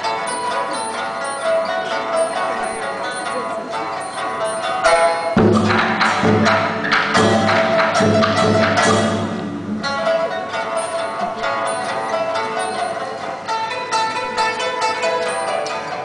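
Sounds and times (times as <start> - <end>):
plucked string ensemble music: 0.0 - 16.0
drum and wood block strikes: 4.4 - 12.6.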